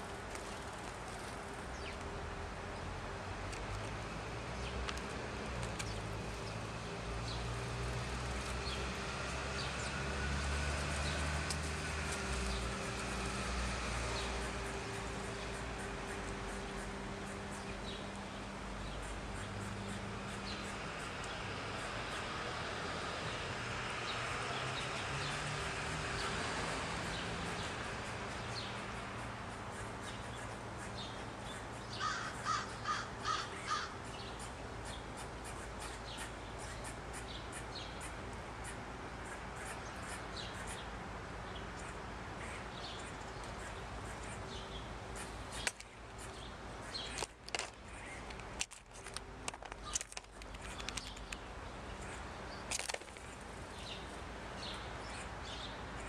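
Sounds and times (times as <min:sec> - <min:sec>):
steady background hiss: 0:00.0 - 0:56.0
sharp clicks and knocks: 0:47.1 - 0:51.4.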